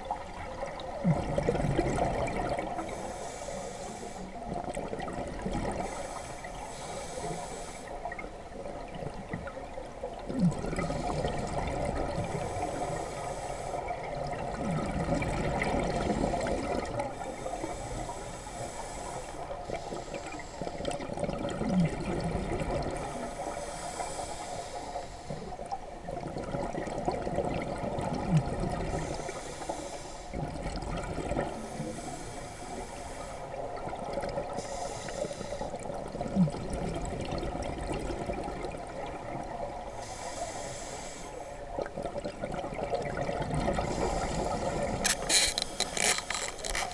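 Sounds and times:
exhaled bubbles gurgling: 0:00.0 - 0:46.9
regulator inhale hiss: 0:02.8 - 0:04.4, 0:05.8 - 0:08.1, 0:12.2 - 0:14.0, 0:17.1 - 0:20.9, 0:22.9 - 0:25.6, 0:28.9 - 0:30.4, 0:31.6 - 0:33.6, 0:34.6 - 0:35.9, 0:40.0 - 0:41.6, 0:43.8 - 0:46.9.

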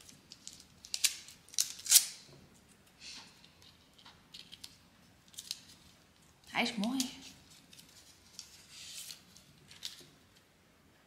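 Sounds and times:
plastic packaging crinkling: 0:04.3 - 0:10.4.

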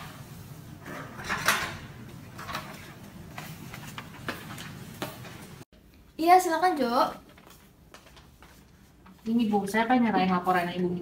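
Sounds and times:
footsteps on hard floor: 0:03.3 - 0:05.6, 0:07.2 - 0:09.3.

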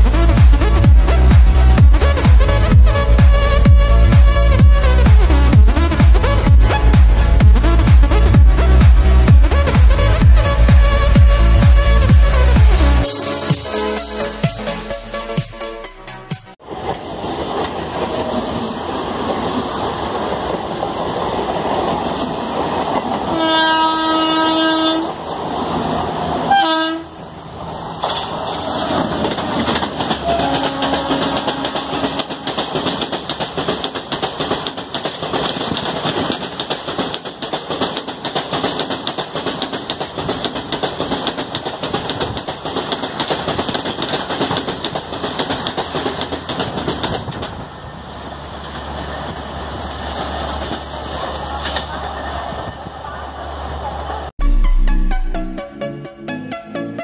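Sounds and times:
train passing at high speed: 0:00.0 - 0:54.3
train horn blasts: 0:23.3 - 0:25.2, 0:26.5 - 0:27.2, 0:30.2 - 0:32.6
clatter of wheels over rail joints: 0:27.6 - 0:52.1.

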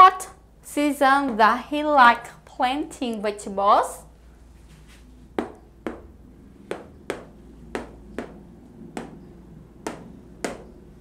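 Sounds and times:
marker tapping whiteboard: 0:05.4 - 0:11.0.

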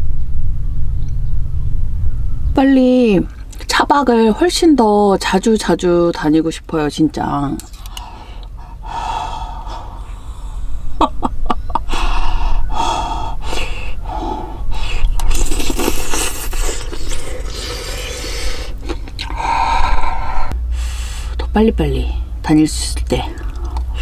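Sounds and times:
woman eating porridge: 0:14.9 - 0:19.4.

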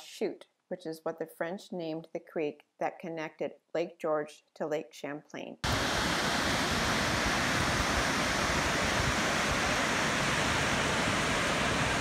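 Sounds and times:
waterfall rushing: 0:05.6 - 0:12.0.

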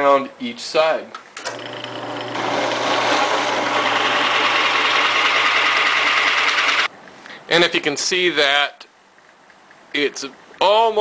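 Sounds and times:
drill press motor hum: 0:01.4 - 0:06.9
drill bit boring into wood: 0:01.5 - 0:06.9.

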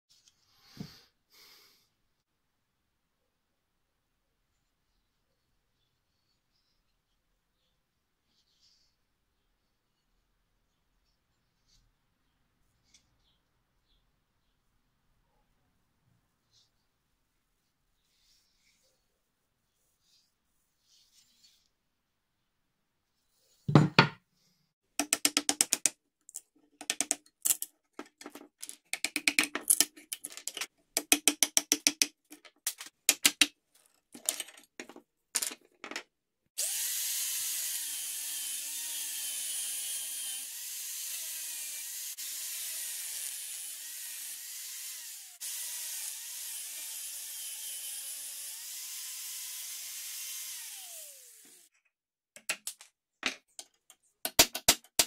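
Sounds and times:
angle grinder grinding steel: 0:36.6 - 0:51.7.

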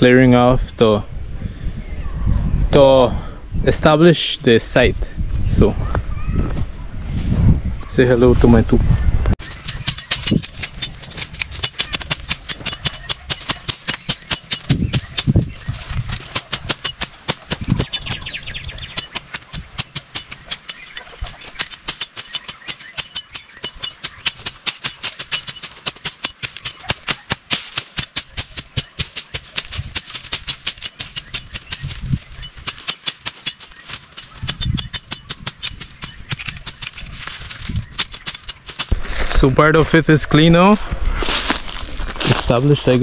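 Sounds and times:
blade chopping through brush: 0:09.4 - 0:39.6.

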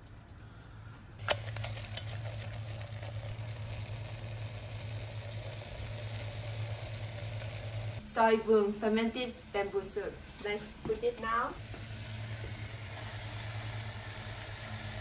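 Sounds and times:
meat sizzling in a pot: 0:01.2 - 0:08.0, 0:11.6 - 0:15.0.

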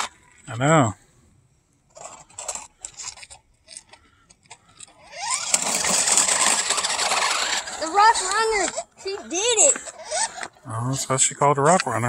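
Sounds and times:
toy truck crunching over rocks: 0:00.0 - 0:00.7, 0:01.9 - 0:10.6
electric motor whining: 0:04.8 - 0:10.6.

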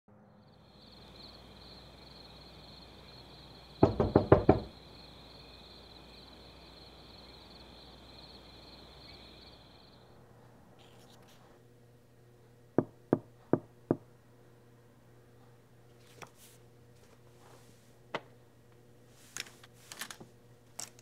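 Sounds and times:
night insects chirring: 0:00.1 - 0:10.3
knocks on a door: 0:03.8 - 0:04.8, 0:12.8 - 0:14.0.

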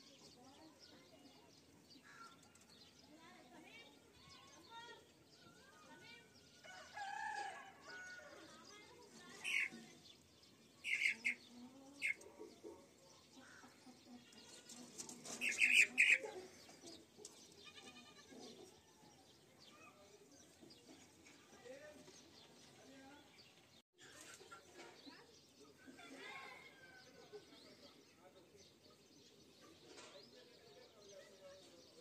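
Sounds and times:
young chickens chirping: 0:07.9 - 0:19.8.

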